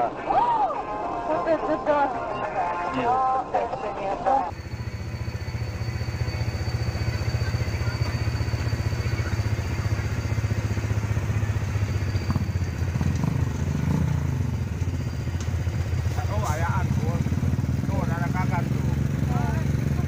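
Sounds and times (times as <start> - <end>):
engine idling: 4.5 - 20.0.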